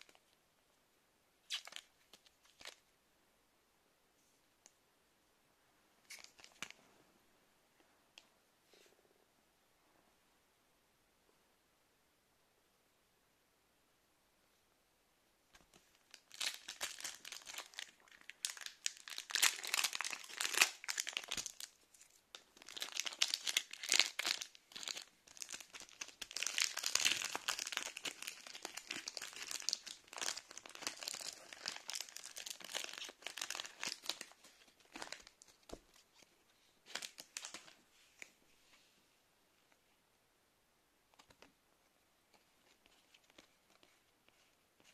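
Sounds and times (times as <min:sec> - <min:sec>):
foil wrapper crinkling and tearing: 0:16.1 - 0:21.8, 0:22.6 - 0:35.8.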